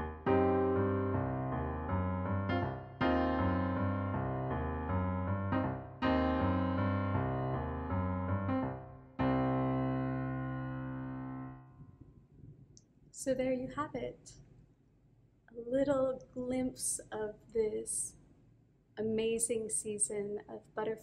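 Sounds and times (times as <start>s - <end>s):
slow piano chords: 0.0s - 12.2s.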